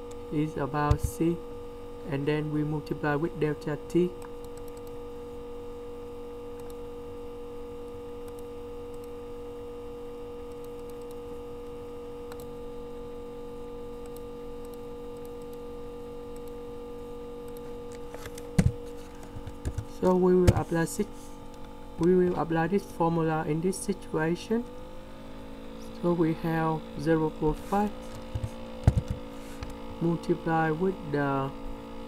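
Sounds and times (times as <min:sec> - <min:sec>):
electrical hum: 0:00.0 - 0:32.0
keyboard typing clicks: 0:04.2 - 0:05.0, 0:06.6 - 0:06.8, 0:08.2 - 0:09.2, 0:10.5 - 0:11.2, 0:12.3 - 0:12.5, 0:14.0 - 0:15.6, 0:19.4 - 0:20.7.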